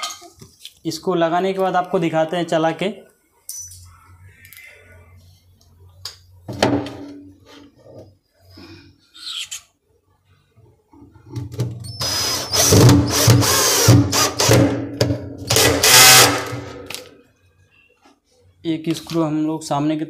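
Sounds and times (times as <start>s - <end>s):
cordless drill driving screw: 11.9s - 14.6s, 15.5s - 16.5s.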